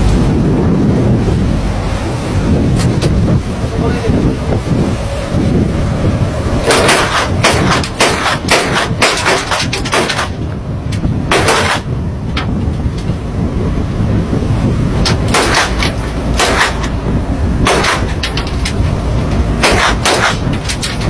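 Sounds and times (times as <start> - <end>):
sea: 0.0 - 21.0
ship engine rumble: 0.0 - 21.0
rifle gunshots: 6.6 - 10.3, 11.3 - 11.8, 15.3 - 15.8, 16.4 - 16.8.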